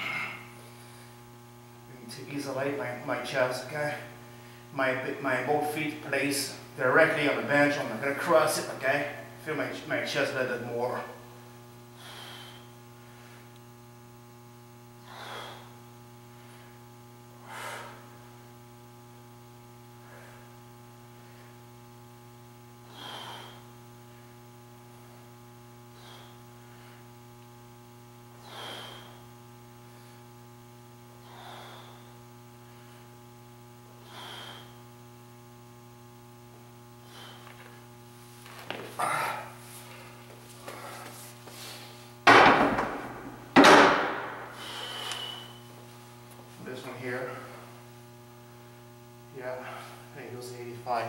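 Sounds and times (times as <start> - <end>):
steady electrical hum: 0.0 - 51.0
man's forceful breaths: 11.9 - 13.6, 15.0 - 18.4, 22.8 - 27.2, 28.3 - 30.3, 31.2 - 33.2, 34.0 - 34.8, 37.0 - 37.8, 43.9 - 45.6.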